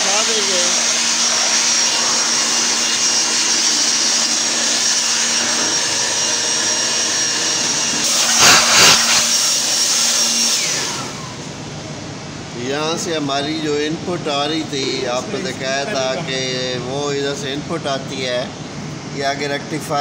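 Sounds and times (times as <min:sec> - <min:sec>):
electric blower whining: 0:00.0 - 0:12.6.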